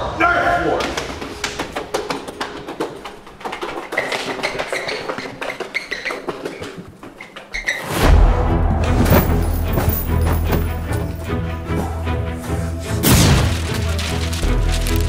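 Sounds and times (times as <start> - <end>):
music: 0.0 - 4.7, 7.9 - 15.0
footsteps running on hard floor: 0.8 - 7.9, 9.0 - 11.2
short high squeaks: 4.0 - 8.0
low boom: 8.0 - 9.7.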